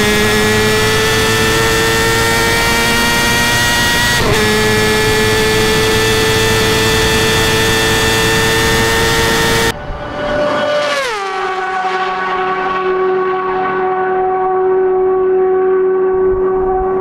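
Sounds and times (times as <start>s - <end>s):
motorcycle engine at full throttle: 0.0s - 17.0s
motorcycle passing by: 0.1s - 17.0s
heavy wind rush: 3.4s - 11.1s.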